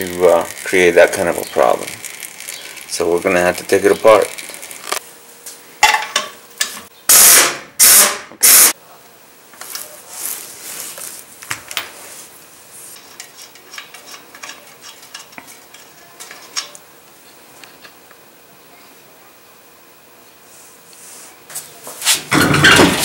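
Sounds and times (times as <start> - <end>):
pneumatic impact wrench bursts: 7.1 - 8.8.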